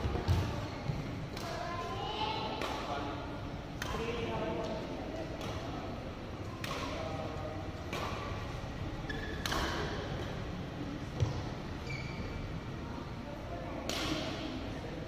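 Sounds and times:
racket hitting shuttlecock: 2.5 - 2.9, 3.8 - 4.1, 5.4 - 5.8, 6.6 - 7.1, 7.8 - 8.4, 9.2 - 10.4, 13.8 - 14.5
shoe squeaks: 9.0 - 9.4, 11.8 - 12.5.

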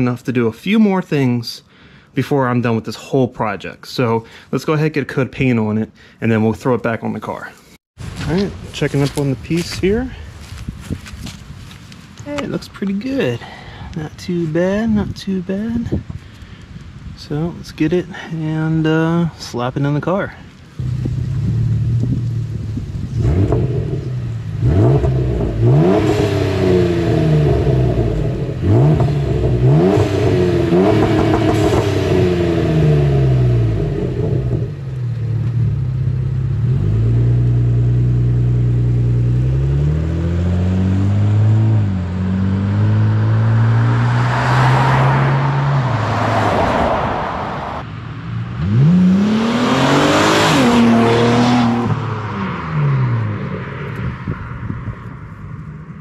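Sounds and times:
car engine revving: 20.7 - 54.5
car accelerating away: 20.8 - 54.4.

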